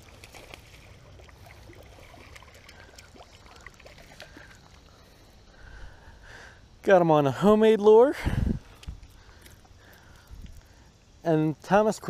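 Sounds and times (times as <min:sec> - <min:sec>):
fish splashing in water: 0:00.0 - 0:05.0.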